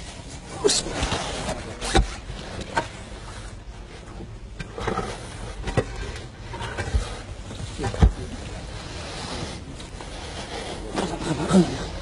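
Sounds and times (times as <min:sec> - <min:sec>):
stone slabs knocking and scraping: 0:04.5 - 0:08.6.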